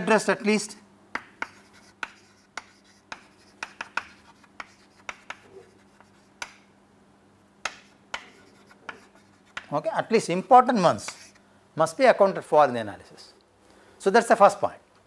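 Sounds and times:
chalk writing on chalkboard: 0:01.2 - 0:06.7, 0:07.6 - 0:09.8, 0:11.0 - 0:11.4.

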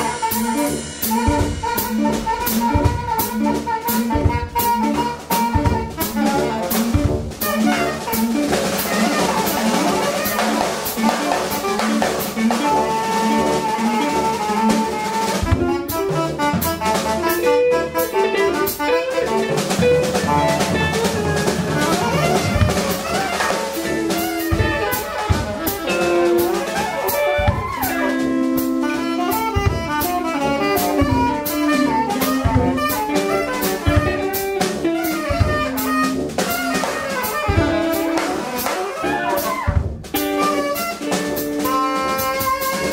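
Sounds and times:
drum kit with cymbals: 0:00.0 - 0:42.9
electric guitar: 0:00.0 - 0:42.9
tenor saxophone: 0:00.0 - 0:42.9
tuba: 0:00.0 - 0:42.9.

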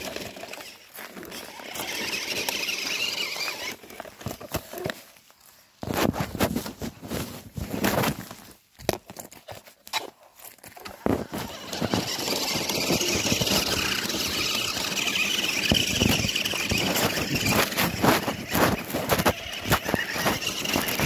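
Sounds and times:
toy truck motor whining: 0:00.0 - 0:04.9, 0:10.8 - 0:21.0
footsteps on leaves and gravel: 0:00.0 - 0:15.0.

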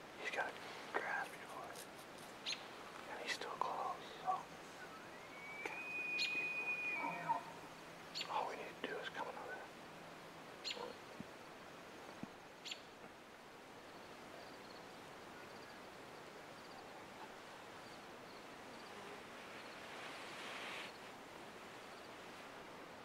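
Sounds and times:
low steady hiss: 0:00.0 - 0:23.0
soft rustle: 0:00.2 - 0:04.9, 0:18.8 - 0:22.6
faint high chirps: 0:04.3 - 0:07.6.

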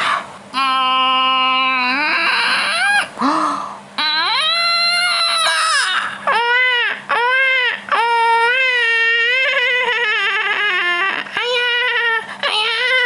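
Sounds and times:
baby crying: 0:00.6 - 0:03.1, 0:04.0 - 0:13.0.

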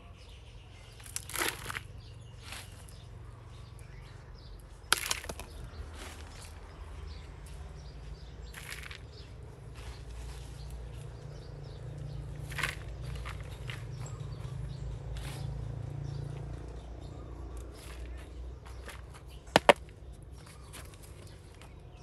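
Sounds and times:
soil rustling and scraping: 0:00.9 - 0:03.0, 0:04.8 - 0:07.2, 0:08.4 - 0:11.2, 0:12.3 - 0:14.3, 0:17.6 - 0:22.0.

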